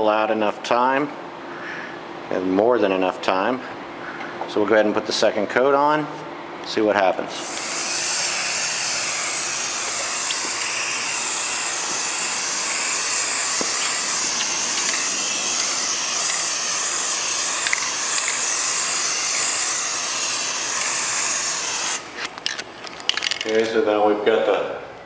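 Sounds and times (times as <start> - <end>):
aerosol can spraying: 7.4 - 22.2.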